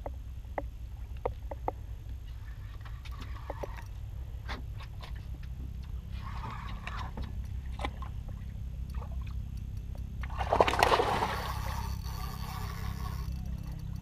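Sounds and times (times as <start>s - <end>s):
steady low rumble: 0.0s - 14.0s
fish splashing water: 10.3s - 14.0s.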